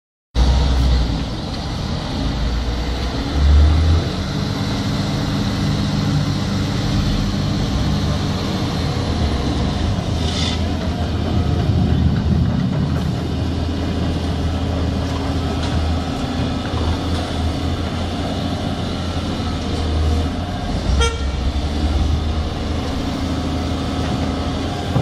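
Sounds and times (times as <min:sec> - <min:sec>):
excavator diesel engine rumbling: 0:00.4 - 0:25.0.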